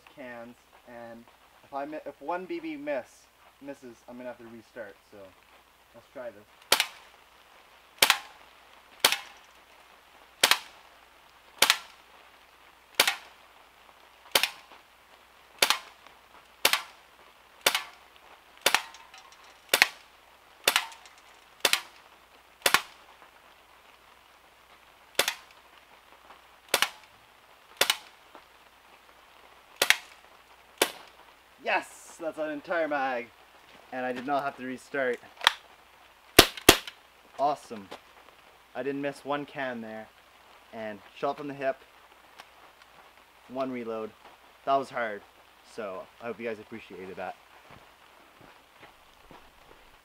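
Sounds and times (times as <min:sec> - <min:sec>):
bb pistol shots: 0:06.7 - 0:07.0, 0:08.0 - 0:08.4, 0:09.0 - 0:09.4, 0:10.4 - 0:10.7, 0:11.6 - 0:12.0, 0:13.0 - 0:13.3, 0:14.3 - 0:14.7, 0:15.6 - 0:16.0, 0:16.6 - 0:17.0, 0:17.6 - 0:18.0, 0:18.6 - 0:20.0, 0:20.6 - 0:22.0, 0:22.6 - 0:23.0, 0:25.2 - 0:25.5, 0:26.7 - 0:27.1, 0:27.8 - 0:28.1, 0:29.8 - 0:30.1, 0:30.8 - 0:31.1, 0:36.4 - 0:37.0.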